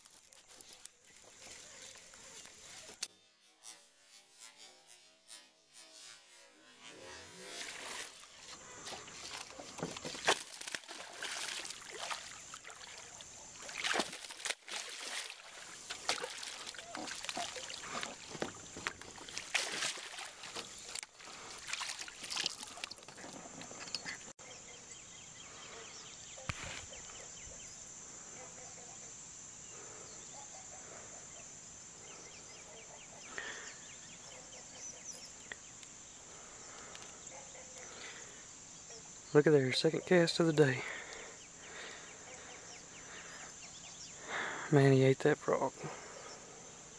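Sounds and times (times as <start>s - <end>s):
high insect chorus: 0.0s - 4.8s, 5.4s - 46.9s
water sloshing: 8.8s - 23.8s.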